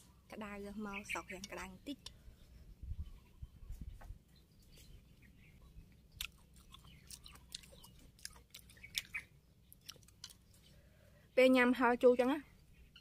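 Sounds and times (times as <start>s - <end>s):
chewing with wet crunches: 5.6s - 11.0s.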